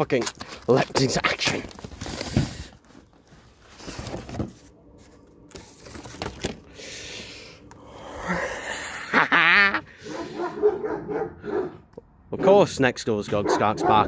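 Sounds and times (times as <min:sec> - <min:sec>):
packaging rustling and scraping: 0:00.0 - 0:06.7
packaging tearing: 0:00.2 - 0:02.6.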